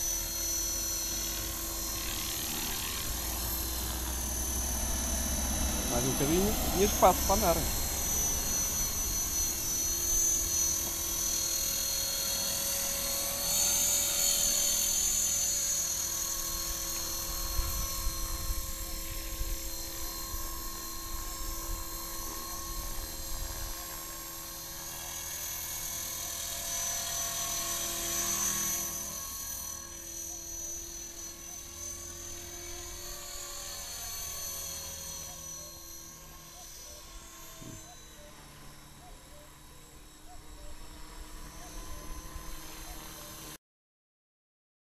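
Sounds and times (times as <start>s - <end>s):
rc helicopter motor whine: 0.0s - 43.6s.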